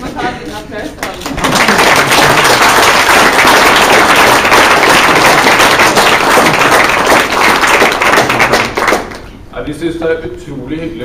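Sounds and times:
audience applauding loudly: 1.0 - 9.3.

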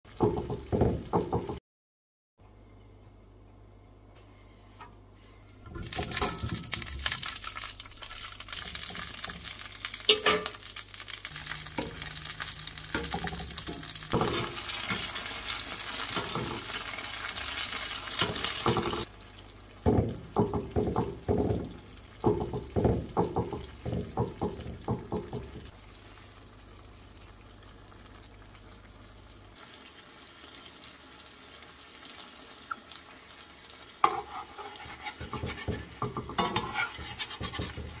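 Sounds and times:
tomatoes sizzling in hot oil: 5.5 - 38.0
stirring strokes in pan: 11.3 - 19.1, 25.7 - 27.8, 34.0 - 38.0.

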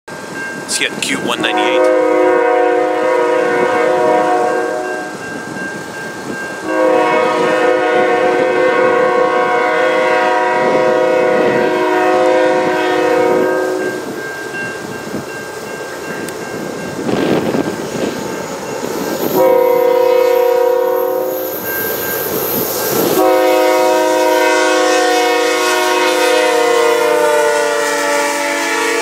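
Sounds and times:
train rumbling: 0.1 - 29.0
locomotive air horn blasts: 1.2 - 5.2, 6.6 - 14.1, 19.4 - 21.4, 23.0 - 29.0.

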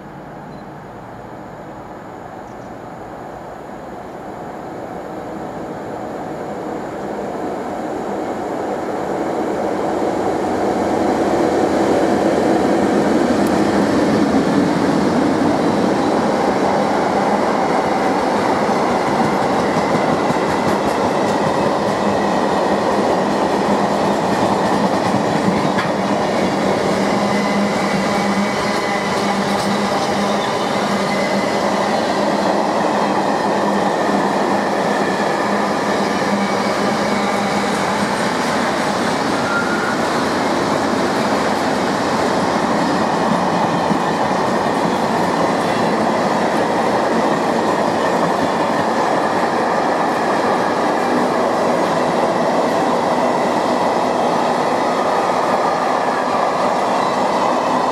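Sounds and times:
freight train passing: 0.0 - 57.9.

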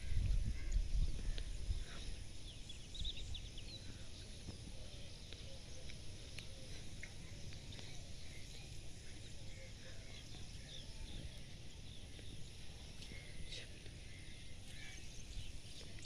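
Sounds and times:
wind buffeting microphone: 0.0 - 5.2.

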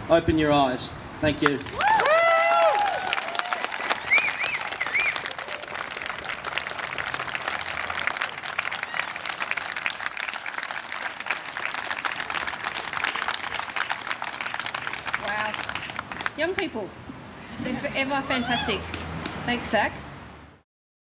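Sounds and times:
crowd applauding: 1.4 - 16.6
short high calls: 4.0 - 5.3.

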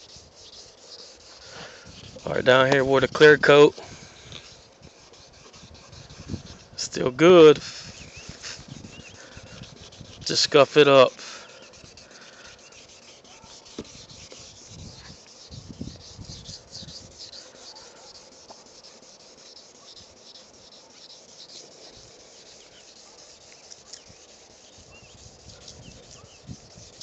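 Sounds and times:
sandpaper scuffing wet surface: 0.0 - 27.0
wind rumble on microphone: 1.9 - 3.1, 5.6 - 6.8, 7.6 - 10.3, 14.6 - 17.1, 24.8 - 27.0.

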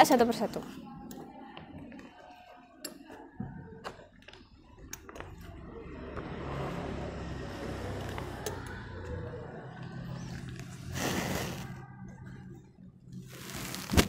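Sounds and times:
plastic sheets crinkling: 13.3 - 14.0.

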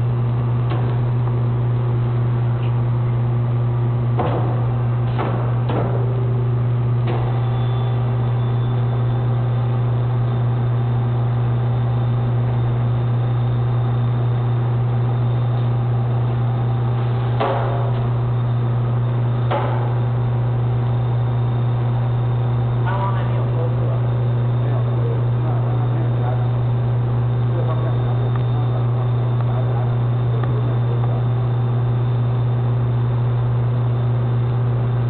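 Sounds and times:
machine humming: 0.0 - 35.0
machine knocks: 4.1 - 6.2, 17.3 - 18.1, 19.4 - 20.1.

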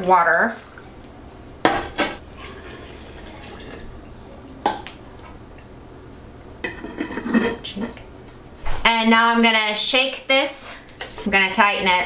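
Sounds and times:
water pouring into glass jar: 2.2 - 4.0.

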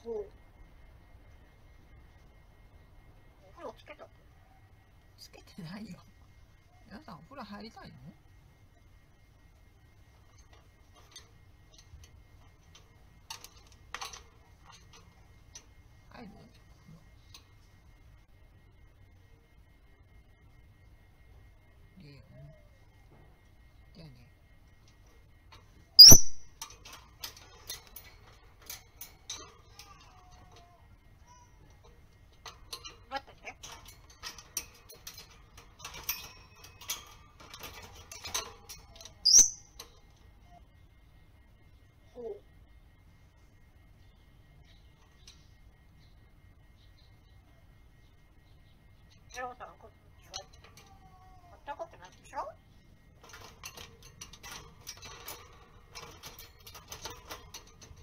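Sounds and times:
parrot clicking in wire cage: 10.3 - 18.0, 24.8 - 40.4, 50.2 - 58.0.

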